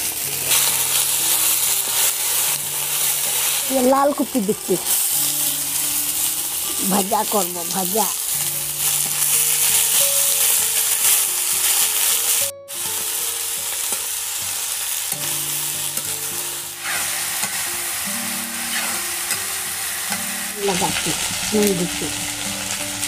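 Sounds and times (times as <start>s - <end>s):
vegetables sizzling in oil: 0.0s - 23.0s
metal spatula scraping pan: 16.8s - 17.6s.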